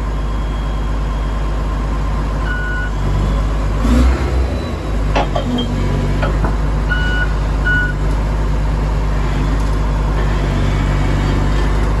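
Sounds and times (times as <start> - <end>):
bulldozer diesel engine running: 0.0 - 12.0
reversing alarm beeps: 0.2 - 1.5, 2.4 - 3.5, 6.9 - 8.0.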